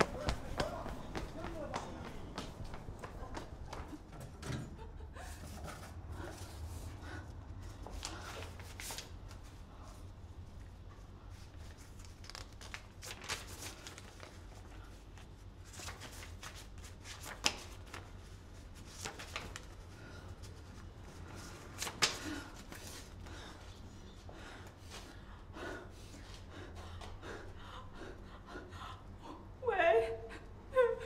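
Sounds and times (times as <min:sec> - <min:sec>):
paper rustling and crinkling: 0:11.3 - 0:19.8
paper snapping: 0:21.8 - 0:22.3.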